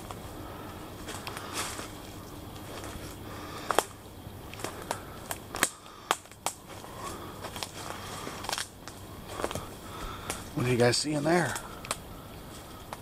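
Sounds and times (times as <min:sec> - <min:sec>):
footsteps through dry leaves: 0:01.0 - 0:05.8, 0:06.6 - 0:11.8
twigs snapping underfoot: 0:01.0 - 0:10.6, 0:11.4 - 0:13.0.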